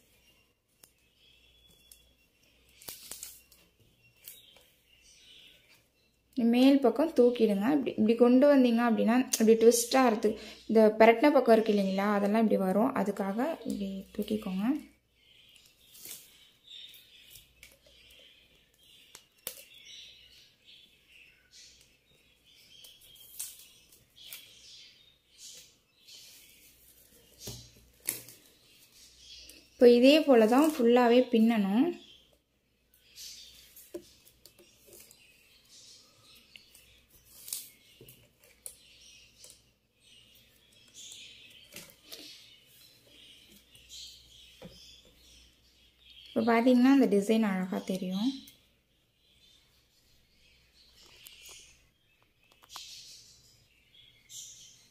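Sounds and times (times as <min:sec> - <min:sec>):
plastic wire rustling: 0:00.0 - 0:05.9, 0:13.6 - 0:20.8, 0:21.5 - 0:24.8, 0:25.4 - 0:31.5, 0:33.1 - 0:45.3.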